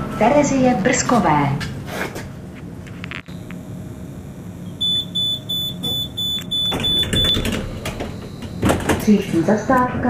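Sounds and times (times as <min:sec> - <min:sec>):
low hum of standing tram: 0:00.0 - 0:10.0
tram door warning beeps: 0:04.6 - 0:09.8.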